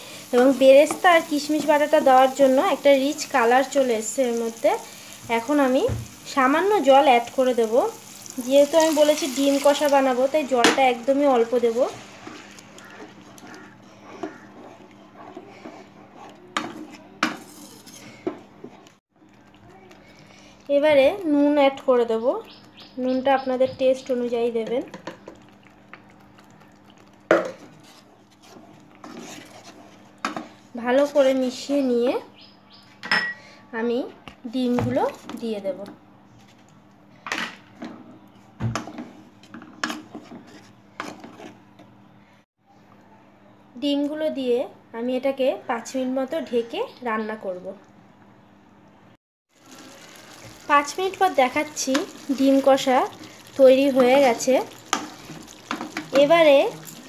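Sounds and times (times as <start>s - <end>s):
wooden spatula scraping a pan: 11.3s - 18.4s, 27.5s - 30.6s, 39.8s - 41.6s.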